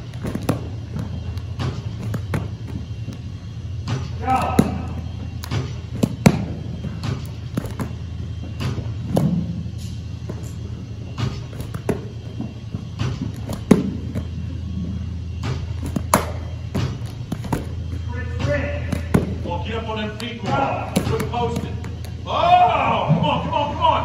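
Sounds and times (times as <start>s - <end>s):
baseballs thudding on catcher's gear: 0.0s - 22.2s
steady low hum: 0.0s - 24.0s.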